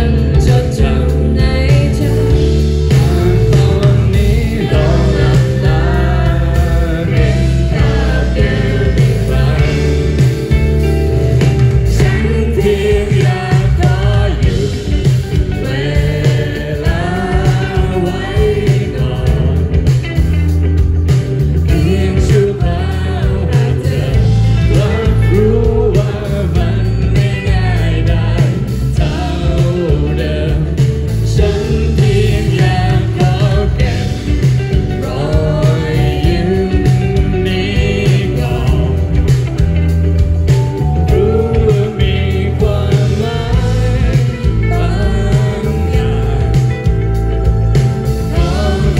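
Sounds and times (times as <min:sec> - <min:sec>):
woman singing into a microphone: 0:00.0 - 0:02.4, 0:12.0 - 0:14.8
bass guitar: 0:00.0 - 0:48.9
drums: 0:00.0 - 0:48.9
electric guitars: 0:00.0 - 0:48.9
keyboard: 0:00.0 - 0:48.9.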